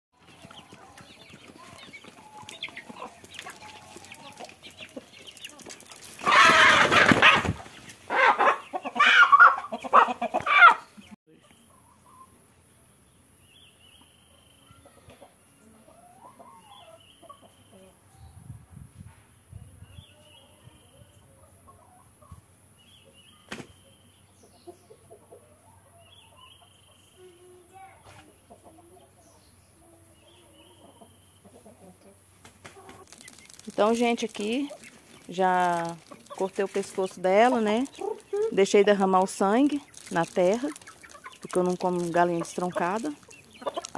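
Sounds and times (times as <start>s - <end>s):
chickens clucking: 0.2s - 12.5s, 14.8s - 18.1s, 20.4s - 43.9s
hens clucking softly: 0.8s - 11.2s
chicken squawking loudly: 6.2s - 10.9s.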